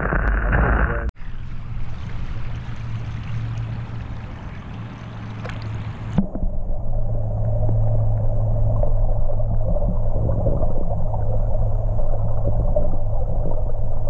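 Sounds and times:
rushing water and air noise: 1.2 - 14.0
muffled underwater sound: 5.2 - 14.0.

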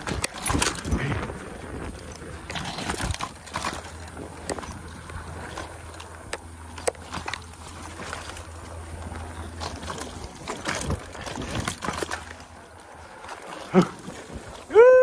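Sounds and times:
bike knocking and rattling: 0.0 - 15.0
low steady hum: 0.0 - 15.0
tyre noise on dirt: 0.0 - 15.0.

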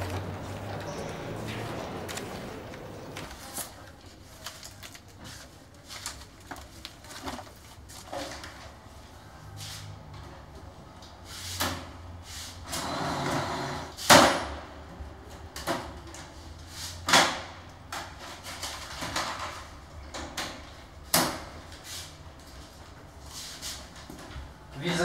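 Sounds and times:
photocopier clunks and clicks: 0.0 - 3.7.

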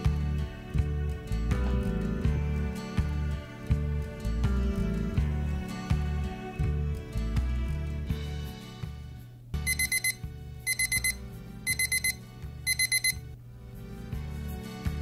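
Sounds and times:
background music: 0.0 - 15.0
watch alarm rapid beeps: 9.7 - 13.2.

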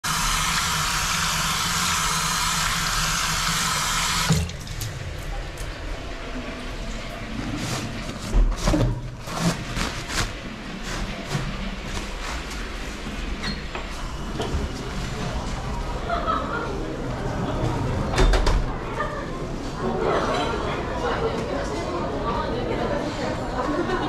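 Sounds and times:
paper towels rustling: 7.4 - 13.4.

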